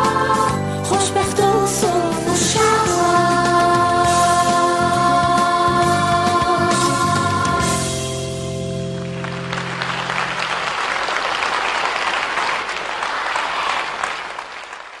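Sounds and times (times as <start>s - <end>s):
audience applause: 9.0s - 15.0s.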